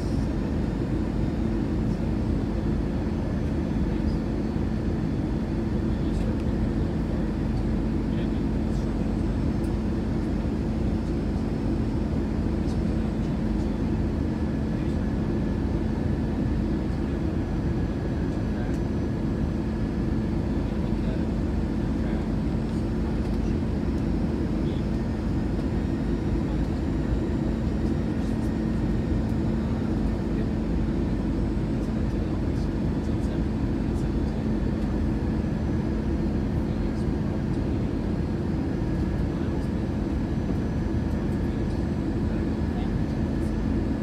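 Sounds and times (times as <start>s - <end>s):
airplane cabin drone: 0.0s - 44.0s.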